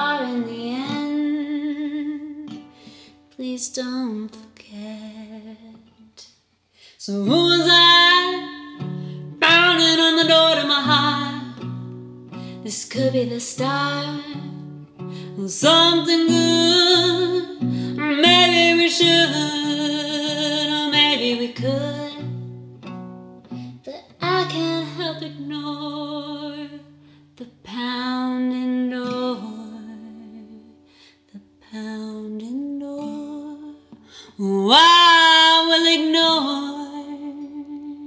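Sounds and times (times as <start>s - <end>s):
plucked acoustic guitar chords: 7.3s - 27.0s
person singing: 23.8s - 30.6s.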